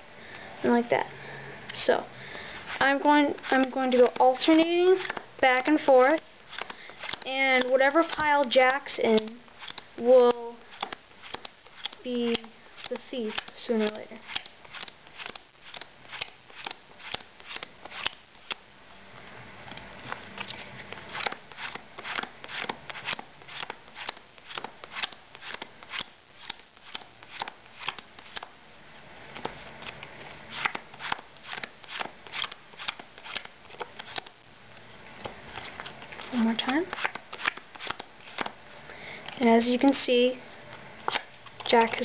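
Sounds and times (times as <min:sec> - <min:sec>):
playing cards snapping down: 0:30.6 - 0:34.3.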